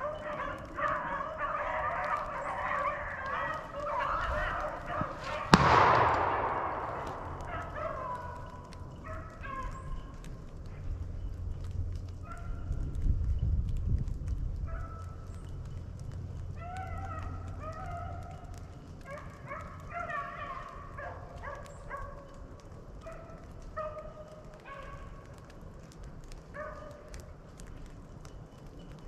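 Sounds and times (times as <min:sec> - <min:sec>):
dogs baying: 0:00.0 - 0:10.1, 0:16.5 - 0:22.4, 0:26.5 - 0:27.2.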